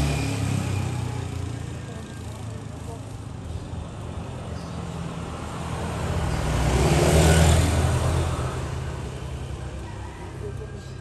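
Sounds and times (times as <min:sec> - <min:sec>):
motor vehicle passing by: 0:00.0 - 0:11.0.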